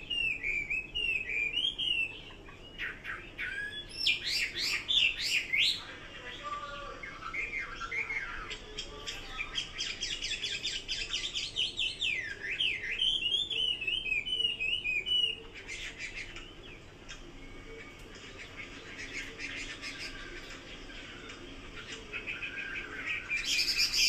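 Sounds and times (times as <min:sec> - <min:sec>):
songbird singing whistled phrases: 0:00.0 - 0:05.9, 0:06.8 - 0:17.8, 0:21.8 - 0:24.0.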